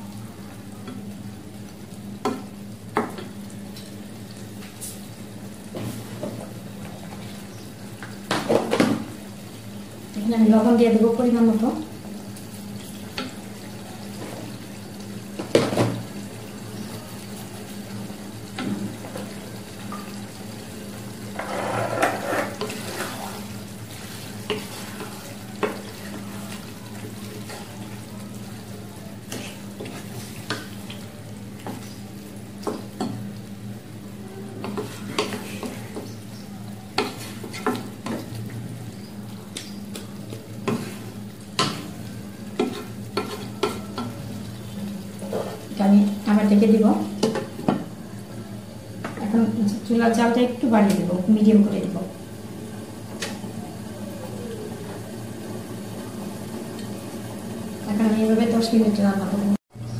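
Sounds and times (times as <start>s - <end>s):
wooden spatula scraping pan: 21.3s - 23.4s.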